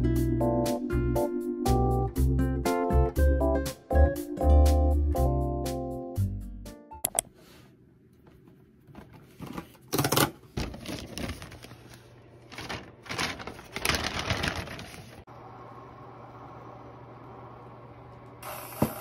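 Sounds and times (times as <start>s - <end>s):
paper leaflet rustling: 10.6s - 15.3s.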